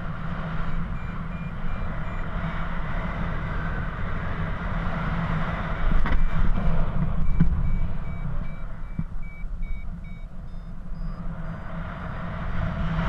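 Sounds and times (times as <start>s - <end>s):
variometer short beeps: 0.6s - 2.6s, 5.7s - 11.8s.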